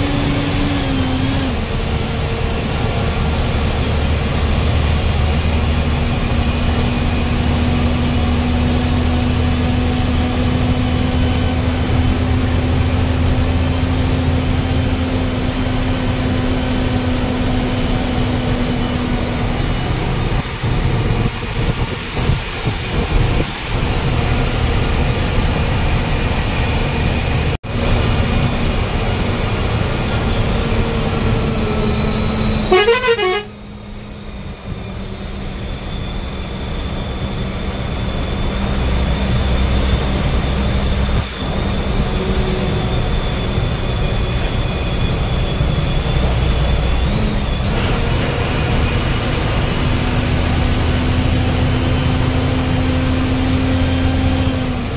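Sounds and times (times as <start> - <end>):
bus engine and road rumble: 0.0 - 54.9
vehicle horn: 32.6 - 33.7.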